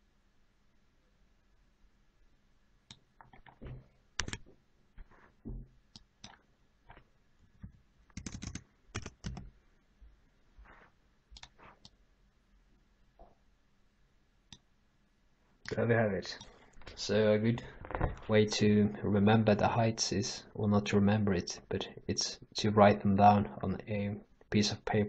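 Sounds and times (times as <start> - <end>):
keyboard keys clicking: 4.2 - 4.4, 7.6 - 9.5.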